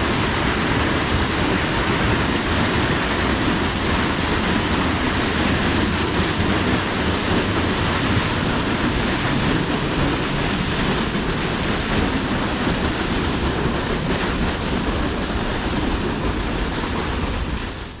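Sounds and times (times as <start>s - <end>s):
wind on microphone: 0.0s - 18.0s.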